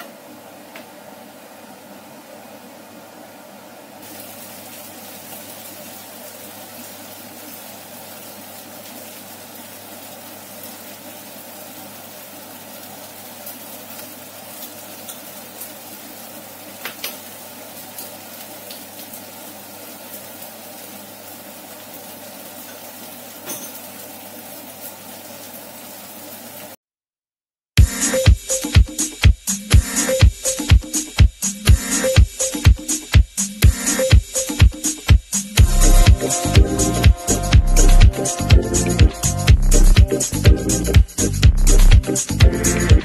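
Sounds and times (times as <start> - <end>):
soup boiling in a saucepan: 3.6 - 26.8.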